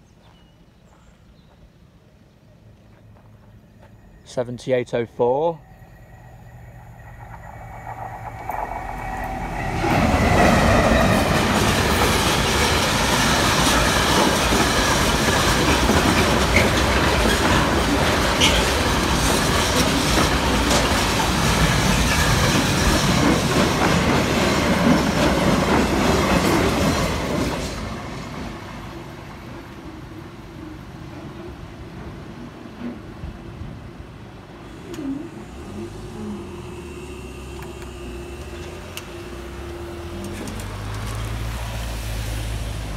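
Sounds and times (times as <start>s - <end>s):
diesel locomotive passing: 1.9s - 42.9s
wheels clattering over rail joints: 6.7s - 28.5s.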